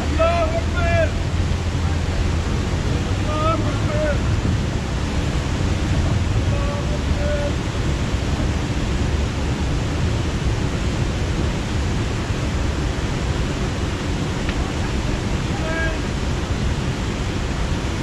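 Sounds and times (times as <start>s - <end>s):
distant voices calling: 0.0s - 9.6s
steady rushing noise: 0.0s - 18.0s.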